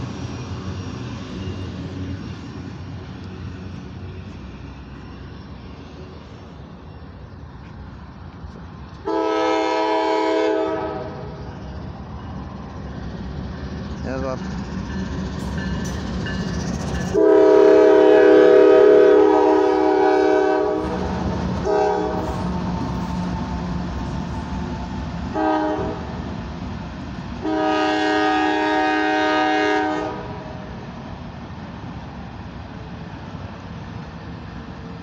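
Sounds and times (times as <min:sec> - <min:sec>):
locomotives rumbling past: 0:00.0 - 0:35.0
locomotive air horn: 0:09.1 - 0:11.3, 0:17.1 - 0:22.7, 0:25.3 - 0:26.1, 0:27.4 - 0:30.6.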